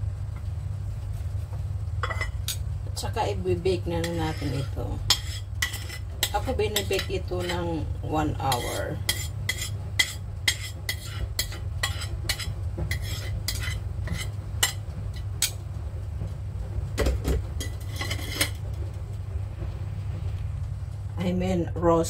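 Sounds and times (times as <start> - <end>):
steady low hum: 0.0 - 22.0
metal tongs scraping ceramic bowl: 3.9 - 7.8, 8.4 - 14.8.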